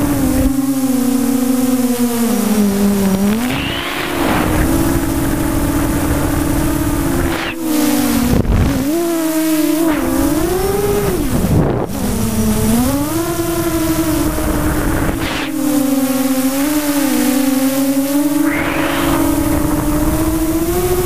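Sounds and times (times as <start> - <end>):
electric motors buzzing whine: 0.0 - 21.0
rushing noise: 3.3 - 7.7, 18.4 - 20.5.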